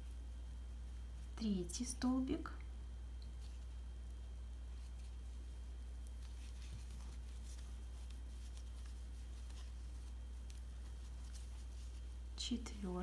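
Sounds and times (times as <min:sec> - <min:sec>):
steady low hum: 0:00.0 - 0:13.0
twine rustling through stitches: 0:03.2 - 0:13.0.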